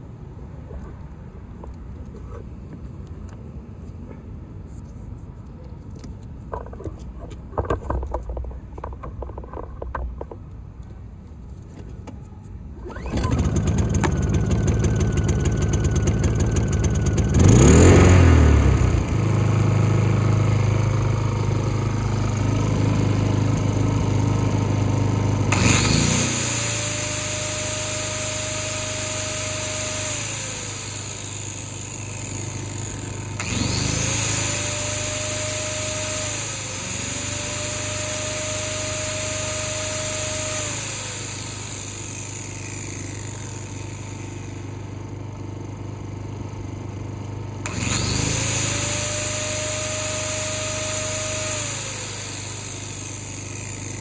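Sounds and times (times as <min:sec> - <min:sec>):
generator running: 0:11.7 - 0:54.0
angle grinder whining: 0:12.8 - 0:45.5, 0:47.6 - 0:54.0.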